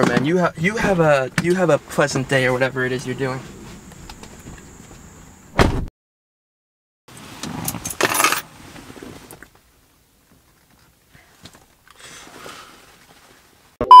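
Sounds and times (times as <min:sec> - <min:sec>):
clatter and rustle: 0:07.2 - 0:13.8.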